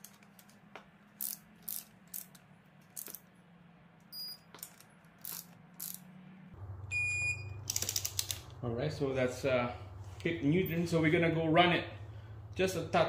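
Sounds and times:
torque wrench ratchet clicking: 1.2 - 2.4, 5.2 - 6.0, 7.7 - 8.4.

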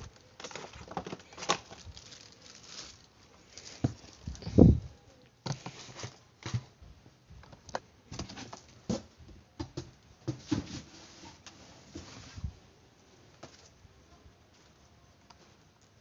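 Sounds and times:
cardboard boxes knocking and rustling: 8.1 - 12.2.

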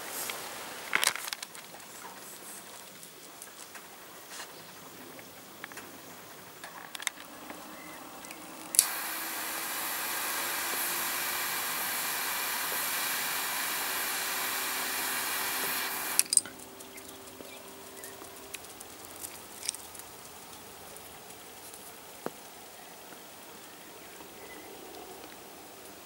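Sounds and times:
steady hiss: 0.0 - 26.0
clicks: 8.2 - 16.5.

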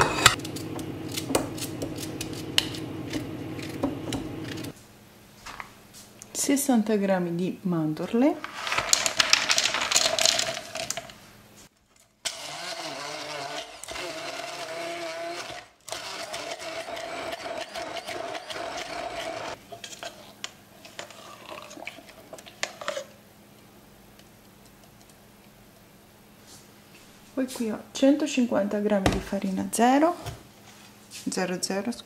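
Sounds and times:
almonds clattering into plastic beaker: 8.5 - 11.2
stick blender motor whine: 12.2 - 19.6.

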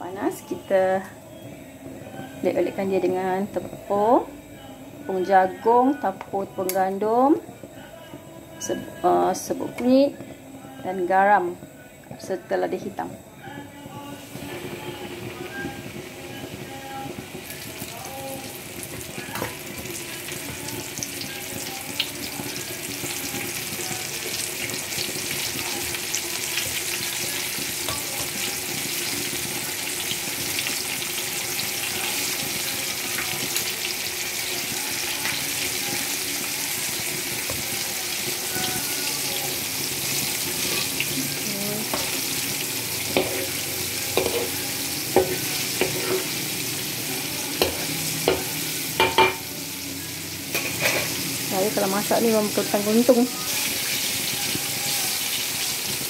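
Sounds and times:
chicken deep-frying in oil: 14.4 - 56.0
metal spatula knocking on wok: 47.6 - 49.5.

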